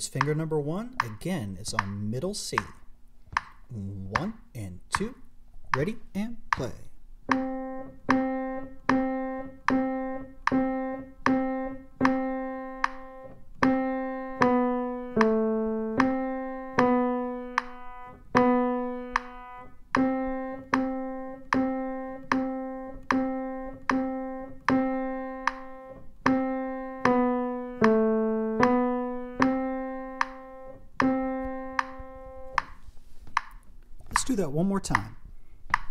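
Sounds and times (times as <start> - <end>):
slow piano melody: 7.3 - 32.8.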